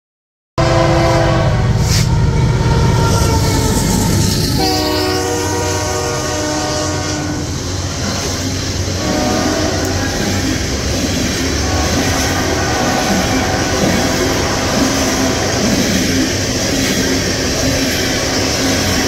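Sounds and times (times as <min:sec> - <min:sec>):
locomotive air horn: 0:00.6 - 0:08.2, 0:08.9 - 0:10.6, 0:11.6 - 0:15.8
rail cars rumbling and clattering: 0:00.6 - 0:19.0.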